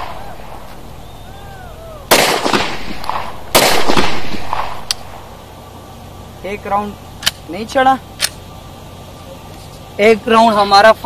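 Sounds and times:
pistol shots with echo: 2.1 - 5.3.

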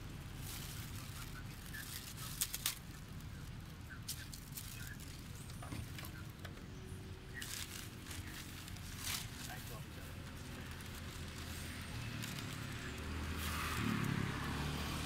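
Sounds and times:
plastic bags crinkling: 0.3 - 3.4, 7.3 - 13.7.

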